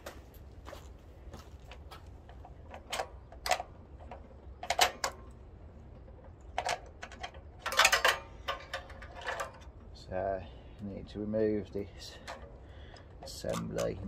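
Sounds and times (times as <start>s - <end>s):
steady low rumble: 0.0s - 13.3s
clicks and knocks of engine parts: 1.6s - 9.9s, 12.0s - 14.0s.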